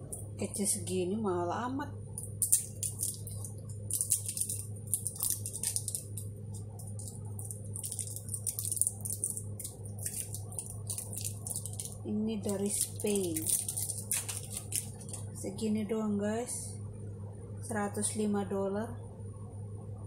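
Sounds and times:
steady low hum: 0:00.0 - 0:20.0
packaging crinkling: 0:02.2 - 0:15.4.

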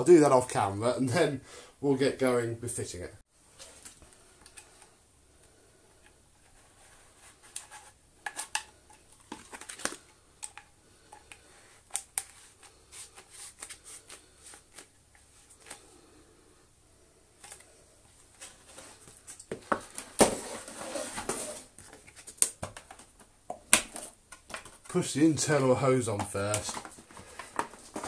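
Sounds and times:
plastic parts clicking and rustling: 0:07.5 - 0:15.8, 0:17.4 - 0:20.4, 0:21.1 - 0:28.0.

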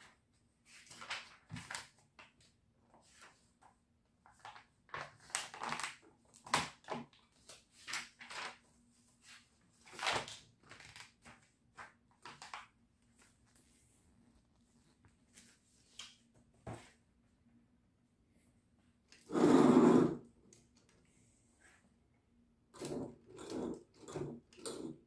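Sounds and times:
paper pages flipping: 0:00.7 - 0:13.8.

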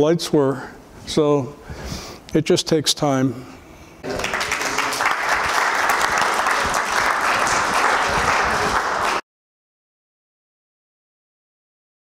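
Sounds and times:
audience applauding: 0:04.0 - 0:09.2.

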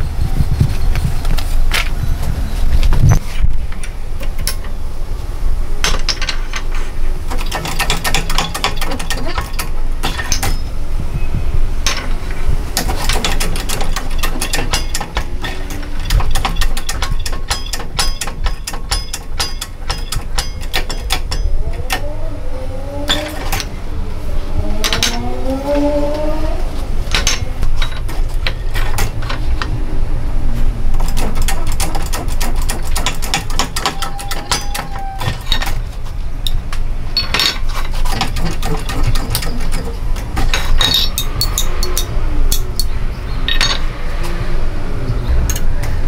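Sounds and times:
metal clicks and clatter: 0:05.8 - 0:10.7, 0:11.9 - 0:22.1, 0:23.1 - 0:23.8, 0:27.0 - 0:29.8, 0:30.9 - 0:42.9, 0:43.5 - 0:43.9
low hum: 0:09.0 - 0:31.2
rising squeaks: 0:21.4 - 0:28.0, 0:33.8 - 0:35.8.

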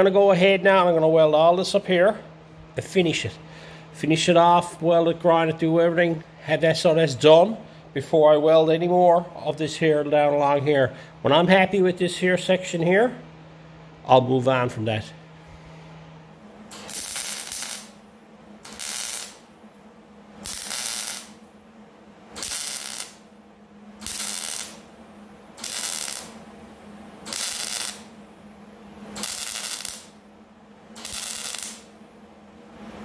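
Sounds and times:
welding arc crackling: 0:16.3 - 0:21.6, 0:22.3 - 0:32.1.

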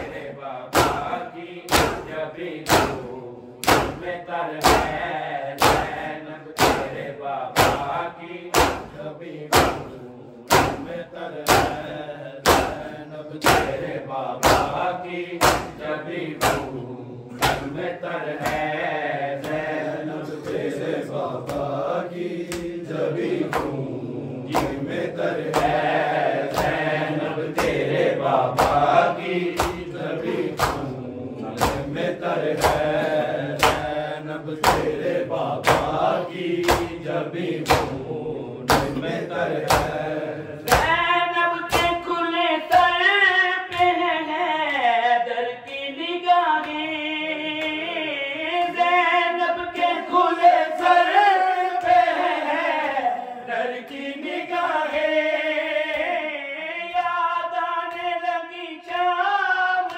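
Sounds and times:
men chanting in unison: 0:00.0 - 0:59.9
hands slapping bare chests: 0:00.1 - 0:07.0, 0:07.6 - 0:09.9, 0:10.5 - 0:16.8, 0:17.4 - 0:17.8, 0:18.4 - 0:19.8, 0:20.4 - 0:20.7, 0:21.4 - 0:21.8, 0:22.4 - 0:22.8, 0:23.4 - 0:23.9, 0:24.5 - 0:30.9, 0:31.5 - 0:34.0, 0:34.6 - 0:38.0, 0:38.7 - 0:41.0.

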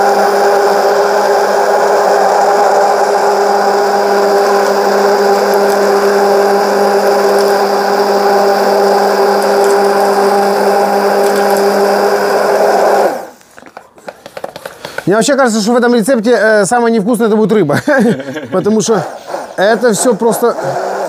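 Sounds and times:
electric blender running: 0:00.0 - 0:13.4, 0:18.3 - 0:21.0.

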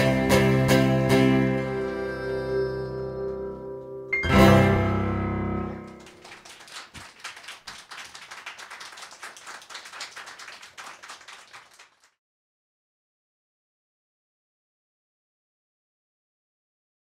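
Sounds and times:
audience applauding: 0:05.7 - 0:12.2.

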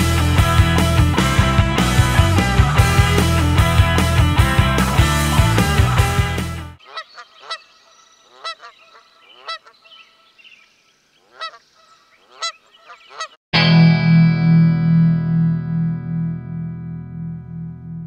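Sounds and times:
rock music with electric guitar: 0:00.0 - 0:06.8, 0:13.6 - 0:18.0
geese honking: 0:06.8 - 0:10.2, 0:11.2 - 0:13.4.

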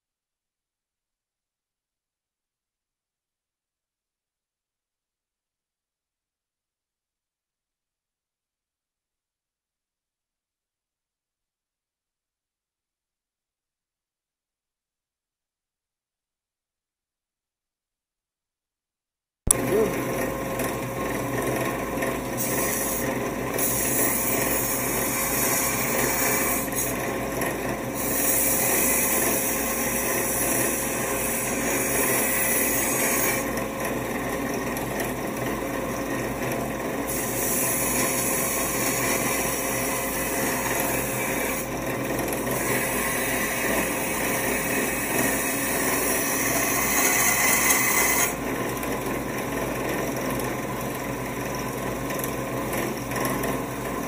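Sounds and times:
blade grinding on belt: 0:22.2 - 0:27.2, 0:27.9 - 0:33.5.

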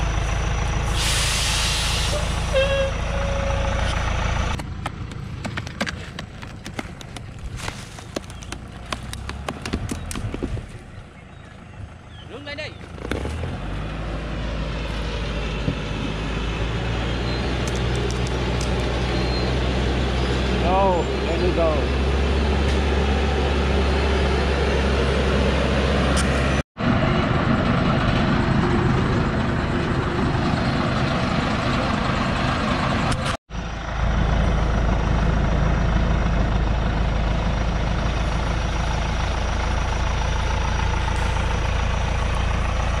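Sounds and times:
truck engine running hard: 0:00.0 - 0:43.0.

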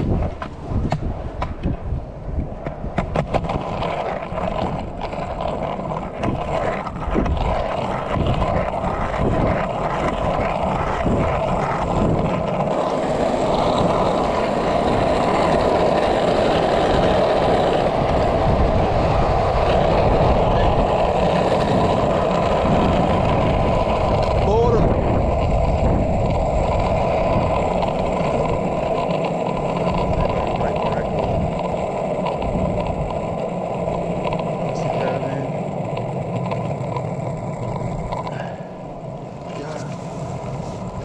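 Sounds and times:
skateboard wheels rolling on asphalt: 0:00.0 - 0:41.0.

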